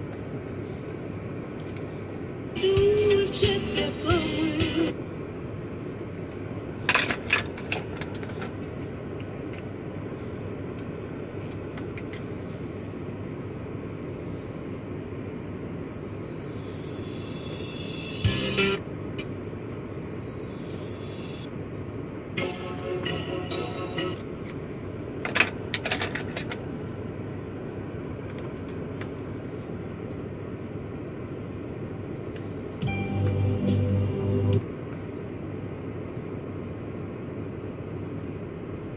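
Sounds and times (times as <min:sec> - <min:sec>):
car stereo music: 0:02.6 - 0:05.0, 0:18.2 - 0:18.8, 0:32.8 - 0:34.6.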